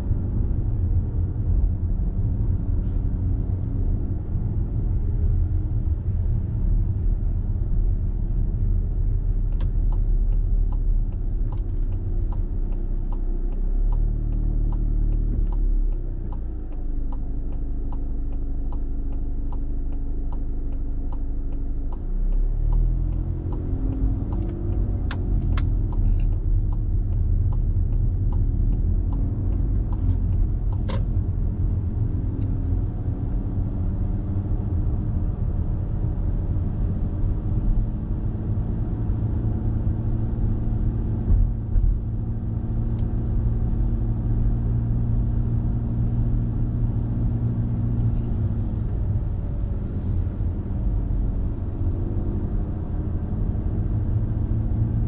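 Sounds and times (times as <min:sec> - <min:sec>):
car engine and road noise: 0:00.0 - 0:55.0
turn indicator ticking: 0:08.4 - 0:34.1, 0:45.5 - 0:53.5.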